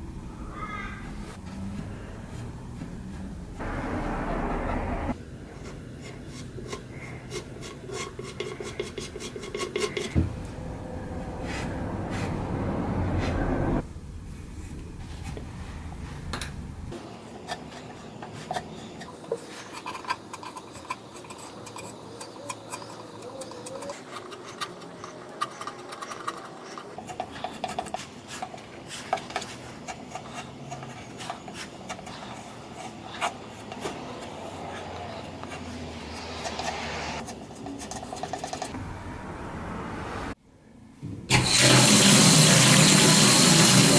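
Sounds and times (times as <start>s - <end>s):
spatula scraping wood filler: 6.7s - 10.3s.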